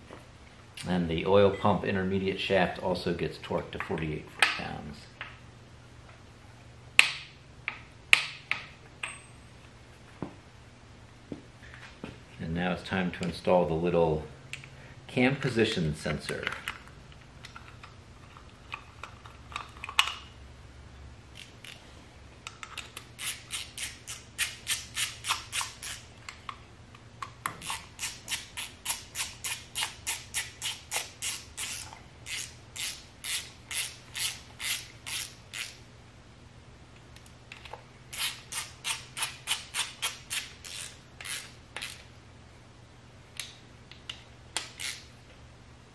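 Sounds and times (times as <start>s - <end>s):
ratchet wrench clicking: 23.2s - 26.0s, 27.6s - 35.8s, 38.1s - 42.0s, 44.6s - 45.1s.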